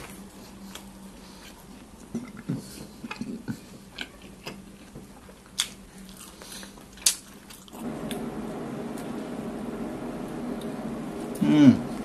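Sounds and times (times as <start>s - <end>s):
man chewing food: 0.0s - 8.3s
steady hiss: 7.8s - 12.0s.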